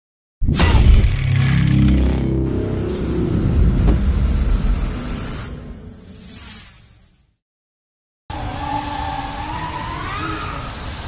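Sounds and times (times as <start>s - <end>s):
glassy shattering crash: 0.6s - 2.3s.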